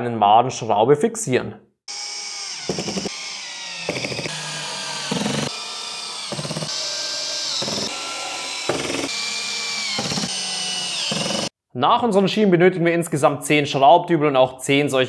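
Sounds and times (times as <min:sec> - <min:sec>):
drill clicking bursts: 0:01.9 - 0:11.5
drill motor whirring: 0:01.9 - 0:11.6.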